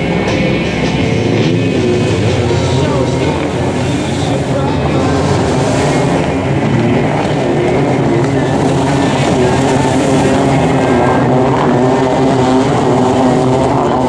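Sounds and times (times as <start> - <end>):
jet ski engines at high revs: 0.0 - 14.0.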